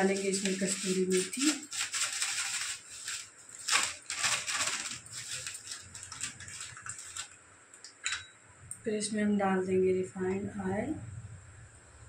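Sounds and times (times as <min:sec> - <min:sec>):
plastic packet crinkling: 0:00.0 - 0:07.4.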